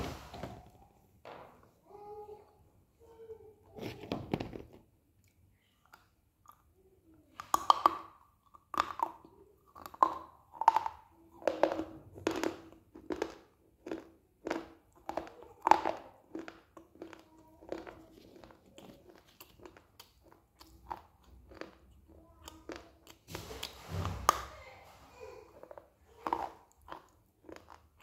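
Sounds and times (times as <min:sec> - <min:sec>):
crunchy chewing: 0:12.2 - 0:24.4, 0:25.5 - 0:28.0.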